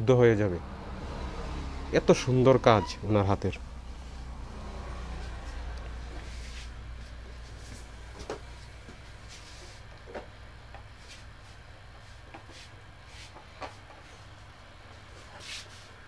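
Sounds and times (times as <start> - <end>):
low steady rumble: 0.0 - 12.3.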